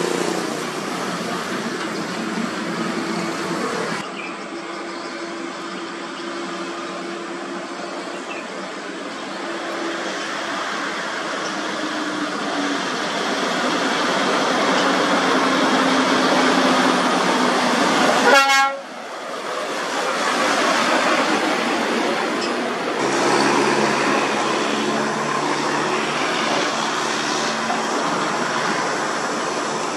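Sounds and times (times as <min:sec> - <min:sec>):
truck diesel engine and tyres: 0:00.0 - 0:29.9
another truck engine: 0:12.3 - 0:29.9
truck horn blast: 0:18.2 - 0:18.9.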